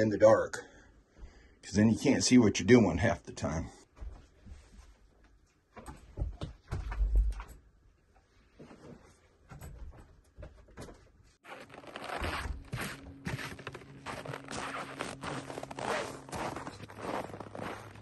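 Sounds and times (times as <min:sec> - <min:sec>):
knocks and shuffling: 0:03.9 - 0:18.0
footsteps crunching through snow: 0:11.4 - 0:18.0.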